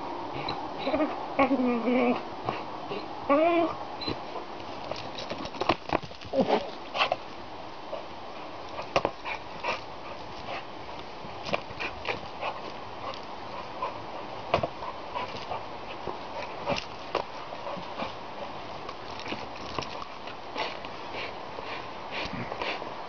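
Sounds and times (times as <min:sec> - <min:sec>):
dog's feet landing: 0:04.1 - 0:07.3.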